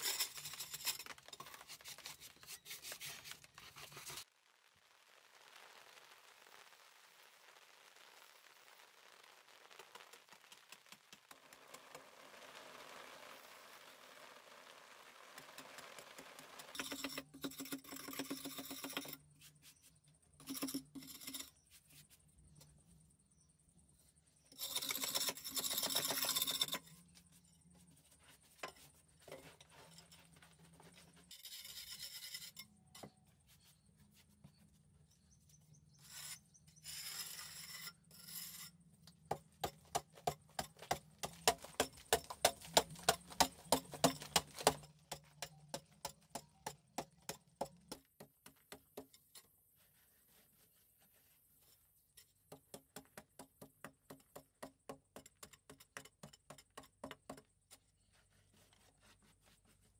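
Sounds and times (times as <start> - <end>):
hoe scraping earth: 0.0 - 4.3, 24.6 - 27.5, 28.8 - 32.7, 35.9 - 38.8
hoe striking earth wall: 39.2 - 49.2.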